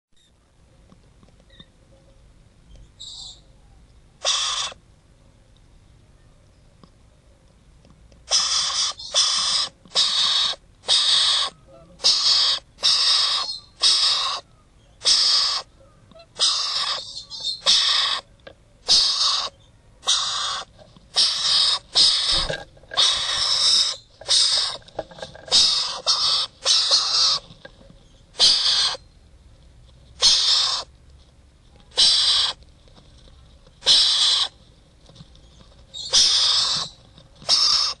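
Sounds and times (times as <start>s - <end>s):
parrots giving harsh calls: 4.2s - 4.8s, 8.3s - 27.5s, 28.4s - 29.1s, 30.2s - 30.9s, 31.9s - 32.6s, 33.8s - 34.6s, 36.0s - 38.0s.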